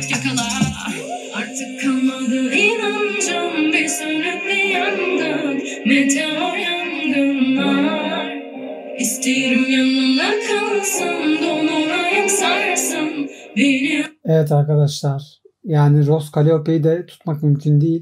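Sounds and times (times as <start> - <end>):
rap beat: 0.0 - 8.5
woman singing: 0.0 - 14.1.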